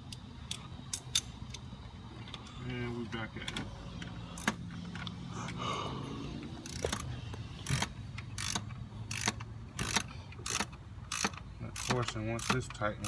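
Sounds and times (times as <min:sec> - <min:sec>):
ratchet wrench clicking: 0:04.0 - 0:05.6, 0:06.6 - 0:13.0.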